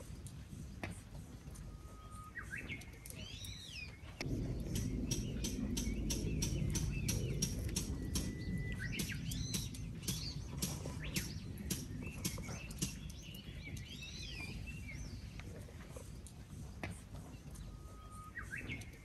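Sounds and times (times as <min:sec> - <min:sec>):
small birds chirping: 0:00.0 - 0:19.0
low rumble: 0:04.2 - 0:19.0
bird whistles: 0:04.8 - 0:13.1, 0:17.6 - 0:19.0.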